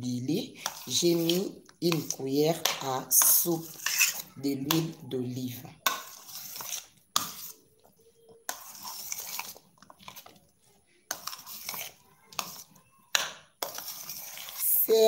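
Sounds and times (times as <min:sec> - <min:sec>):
spoon stirring salad in metal bowl: 0:00.0 - 0:15.0.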